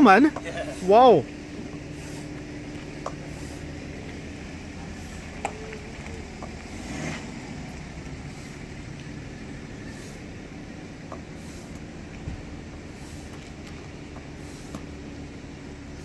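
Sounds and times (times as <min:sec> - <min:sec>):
steady low hum: 0:00.0 - 0:16.0
hand pump hissing air: 0:01.8 - 0:02.4, 0:03.0 - 0:03.8, 0:04.8 - 0:05.6, 0:06.4 - 0:07.0, 0:08.2 - 0:08.7, 0:09.8 - 0:10.4, 0:11.1 - 0:11.9, 0:12.8 - 0:13.5, 0:14.2 - 0:15.0.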